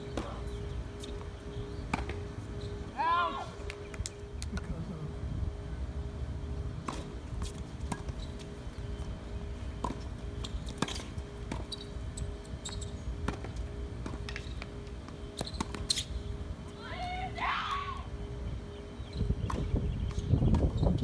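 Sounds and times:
steady hum: 0.0 - 21.0
tennis ball struck and bouncing: 1.9 - 2.2, 6.8 - 8.2.

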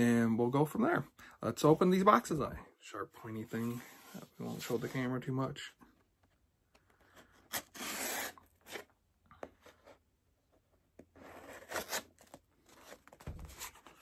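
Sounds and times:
blade slitting packing tape: 7.5 - 8.8, 11.6 - 12.2.

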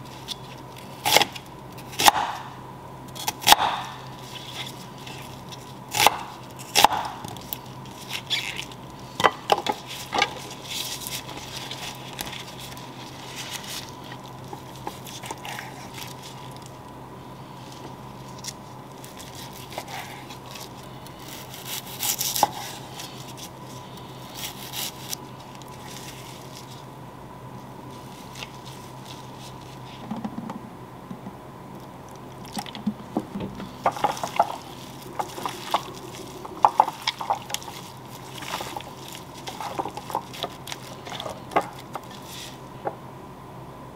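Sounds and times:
steady low hum: 0.0 - 43.9
knife chopping on wooden board: 2.0 - 2.5, 3.4 - 4.0, 6.0 - 7.3.

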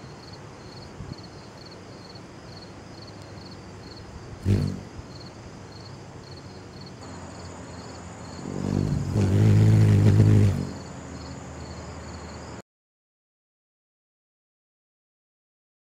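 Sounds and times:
hummingbird wings humming: 3.4 - 5.3, 6.8 - 12.4.

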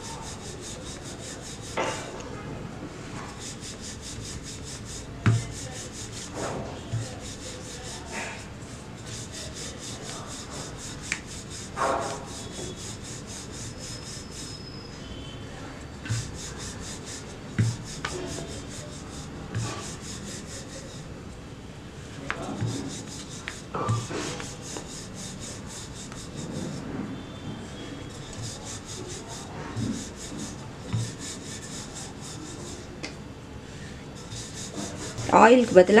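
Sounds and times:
rolling pin rubbing dough: 0.0 - 2.2, 3.0 - 21.2, 21.9 - 36.0
rolling pin knocking board: 3.3 - 14.5, 16.1 - 21.0, 22.2 - 26.8, 28.0 - 32.9, 34.2 - 35.2.

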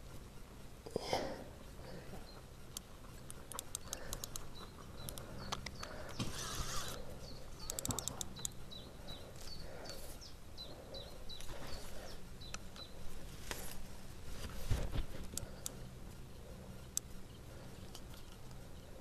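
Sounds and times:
small bird chirping: 1.6 - 13.1
sharp clicks: 2.7 - 8.6, 15.2 - 15.9, 16.9 - 17.1.

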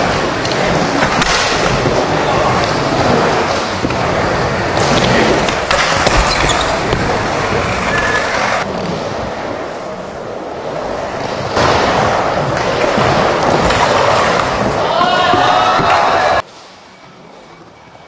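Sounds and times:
skateboard wheels rolling on wood: 0.0 - 17.6.

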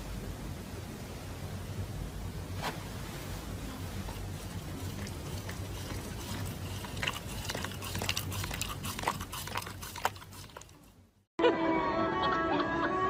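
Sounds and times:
steady low hum: 0.0 - 11.3
dog chewing mouth clicks: 4.1 - 11.0.

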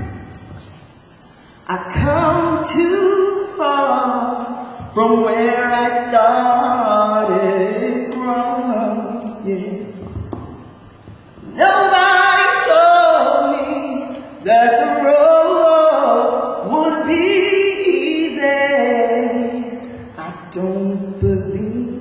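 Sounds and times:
breaths: 1.2 - 1.7.

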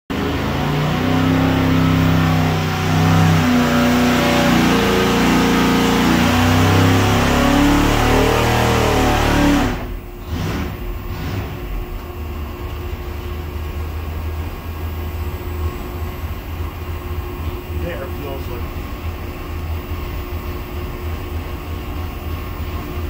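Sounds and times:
engine revving under load: 0.1 - 19.3.

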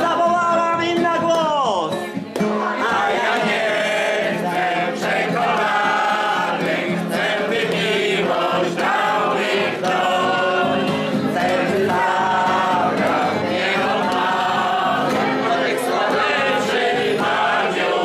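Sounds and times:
group of people singing: 2.3 - 18.0.

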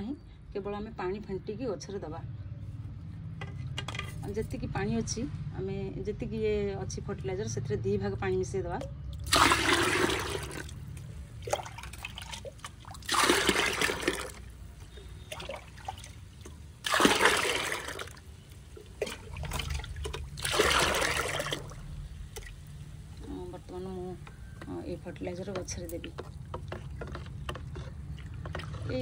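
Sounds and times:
water pouring into a plastic bucket: 9.2 - 22.7.

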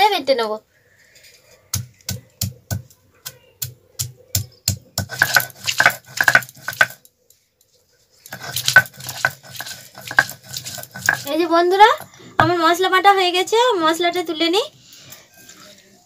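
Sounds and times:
stone roller knocking on stone: 4.7 - 7.0, 8.3 - 11.4
stone scraping back and forth: 5.0 - 7.0, 8.2 - 12.1.

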